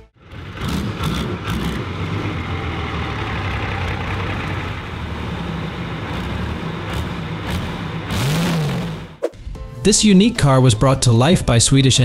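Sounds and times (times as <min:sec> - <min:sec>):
diesel engine running at low revs: 0:00.0 - 0:09.2.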